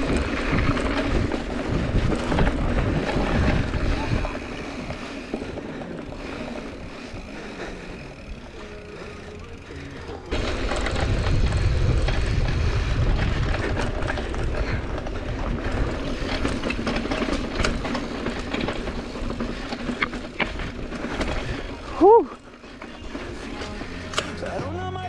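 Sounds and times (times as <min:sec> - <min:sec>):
wind rumble on microphone: 0:00.0 - 0:05.6, 0:10.3 - 0:19.5
bike rattling clicks: 0:00.0 - 0:24.8
bike tyres on dirt trail: 0:00.0 - 0:25.0.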